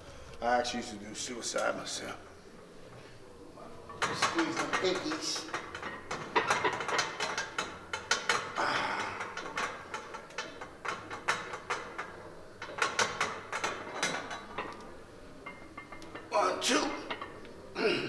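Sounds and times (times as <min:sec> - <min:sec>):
gym weights clanking: 0:03.7 - 0:17.7.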